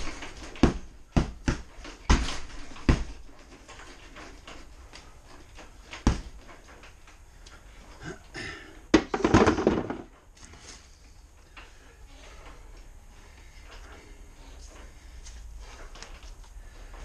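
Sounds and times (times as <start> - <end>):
objects clattering when set down: 8.9 - 10.2.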